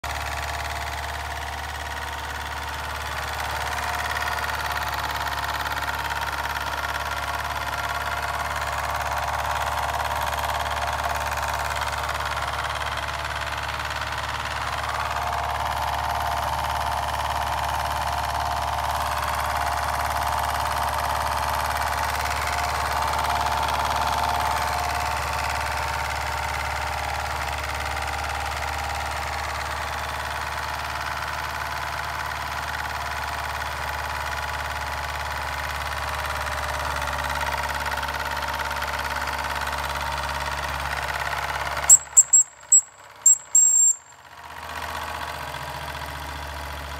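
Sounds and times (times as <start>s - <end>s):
toy steam engine chuffing: 38.9s - 46.9s.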